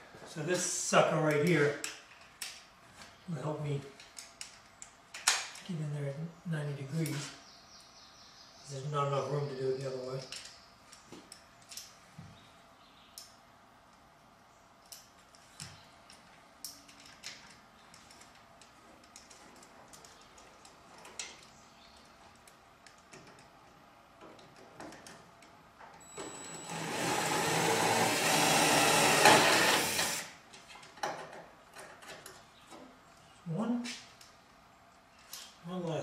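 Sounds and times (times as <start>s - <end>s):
drill running: 26.0s - 30.3s.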